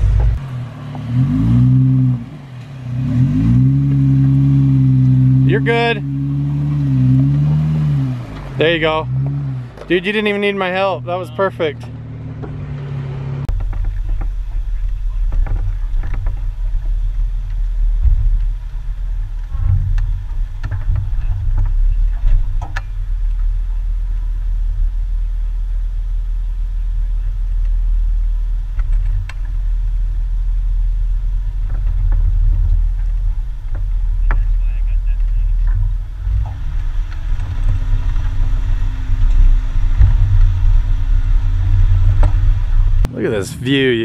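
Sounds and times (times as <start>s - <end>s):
vehicle engine low rumble: 0.0s - 44.0s.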